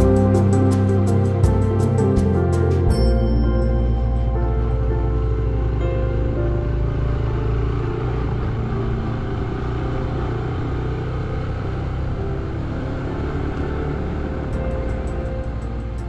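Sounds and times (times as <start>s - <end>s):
motorcycle engine running: 5.2s - 16.0s.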